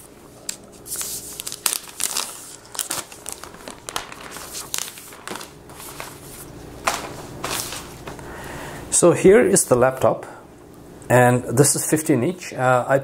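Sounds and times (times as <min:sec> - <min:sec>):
plastic wrapper crinkling: 0:00.4 - 0:08.2.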